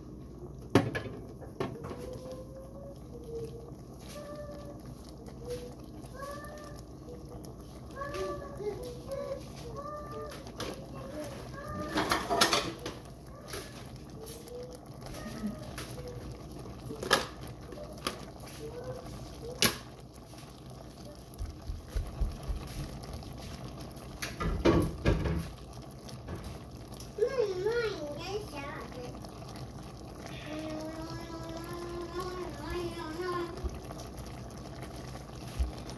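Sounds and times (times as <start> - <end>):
kitchen clatter clicks and knocks: 11.9 - 13.0, 24.3 - 25.5.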